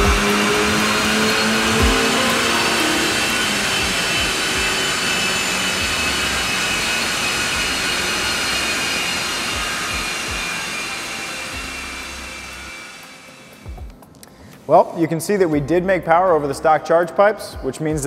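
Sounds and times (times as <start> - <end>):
car engine running hard: 0.0 - 13.7
high turbo whine: 0.0 - 14.0.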